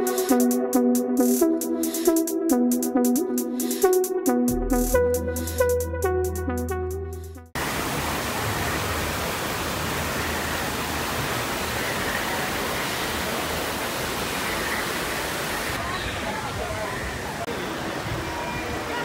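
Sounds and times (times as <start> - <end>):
electronic music: 0.0 - 7.6
water rushing over rocks: 7.6 - 19.0.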